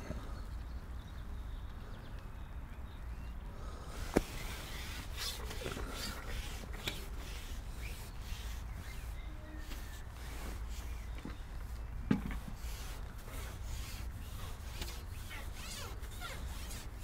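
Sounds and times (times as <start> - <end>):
fishing pole scraping: 4.0 - 17.0
soft knocks: 12.1 - 12.6.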